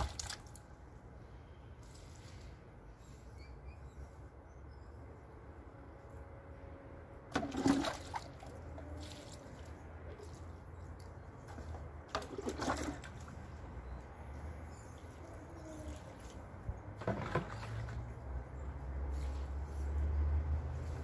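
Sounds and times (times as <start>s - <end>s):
water pouring onto soil: 0.0s - 0.6s, 7.3s - 10.6s.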